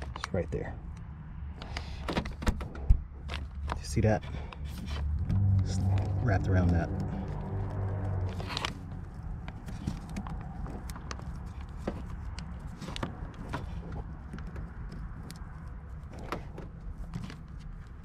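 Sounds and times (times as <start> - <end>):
wires and connectors clicking: 2.6 - 18.0
low steady hum: 4.3 - 12.7.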